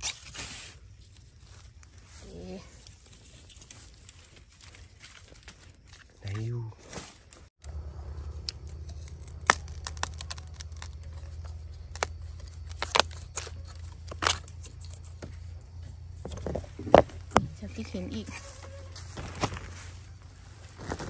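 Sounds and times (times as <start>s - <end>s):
dry bamboo litter crackling: 0.0s - 15.6s, 17.2s - 21.0s
twigs snapping: 8.3s - 15.5s.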